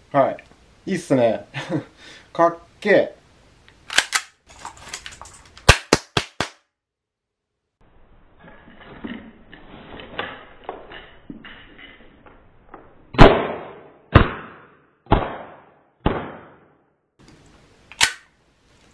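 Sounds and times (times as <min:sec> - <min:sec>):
holster handling rustle and clicks: 0:04.2 - 0:05.6
sharp cap gun shots: 0:05.6 - 0:06.6, 0:13.2 - 0:16.6, 0:18.0 - 0:18.3.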